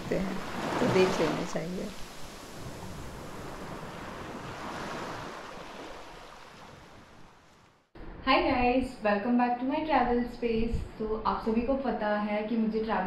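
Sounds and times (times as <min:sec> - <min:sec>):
surf on sandy beach: 0:00.0 - 0:07.8.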